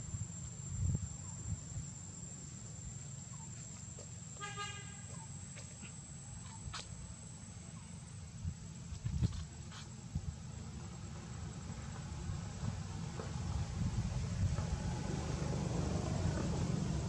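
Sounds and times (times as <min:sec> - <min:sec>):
vehicle horn toot: 0:04.4 - 0:05.1.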